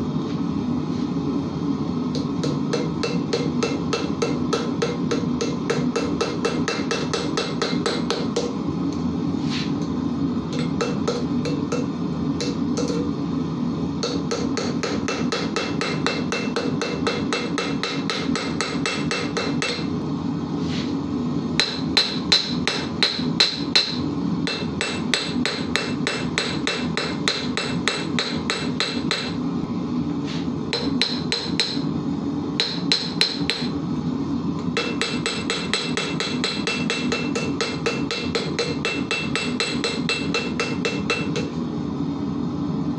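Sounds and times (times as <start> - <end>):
hammer striking iron on anvil: 2.2 - 8.6, 10.5 - 13.0, 14.0 - 19.9, 21.6 - 29.4, 30.7 - 31.9, 32.6 - 33.8, 34.8 - 41.5.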